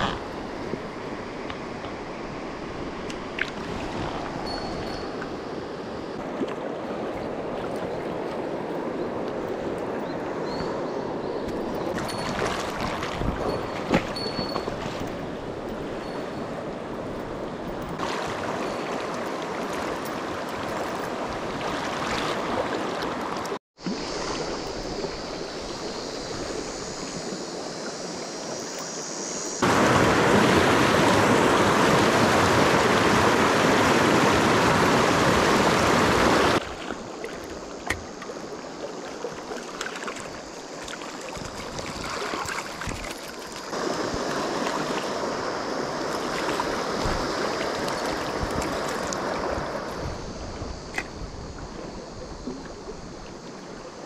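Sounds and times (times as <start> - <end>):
river running over stones: 11.6 - 54.0.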